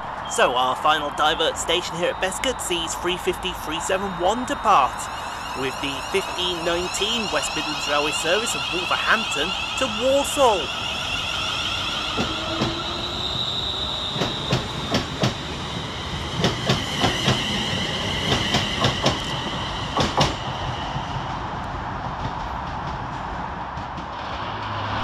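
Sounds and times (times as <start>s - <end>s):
electric train high whine: 0.0s - 25.0s
train wheel clicks on rail joints: 20.0s - 20.4s.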